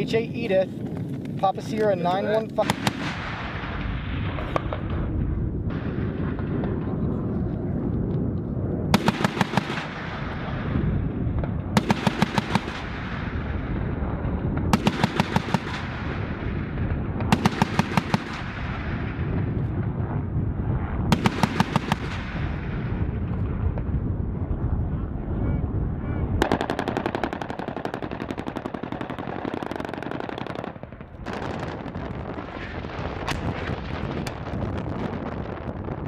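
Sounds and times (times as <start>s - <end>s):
cannon firing bursts: 2.1s - 7.4s, 8.7s - 24.5s, 26.3s - 35.8s.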